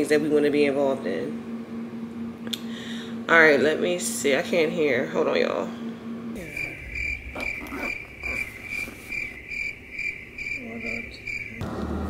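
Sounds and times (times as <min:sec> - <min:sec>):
cricket chirping: 0:06.4 - 0:11.6.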